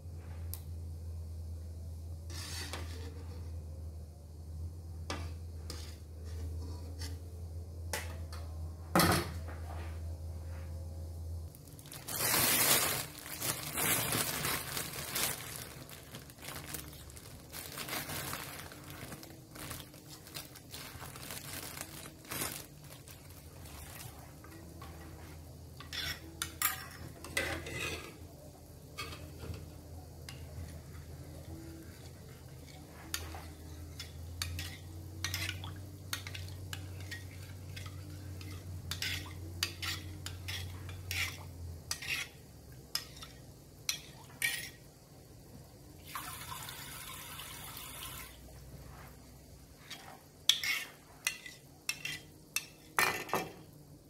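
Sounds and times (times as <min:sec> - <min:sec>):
steady low hum: 0:00.0 - 0:46.0
scraping or rustling noise: 0:02.2 - 0:03.6, 0:05.6 - 0:07.3, 0:09.4 - 0:26.4, 0:48.6 - 0:52.3
utensils clinking on bowls: 0:25.8 - 0:28.2.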